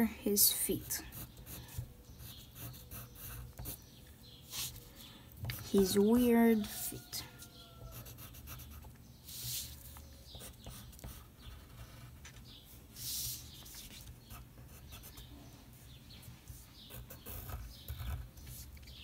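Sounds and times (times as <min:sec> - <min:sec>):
pencil scratching on paper: 0:00.4 - 0:03.8, 0:07.9 - 0:12.3, 0:13.0 - 0:15.3, 0:16.5 - 0:19.0.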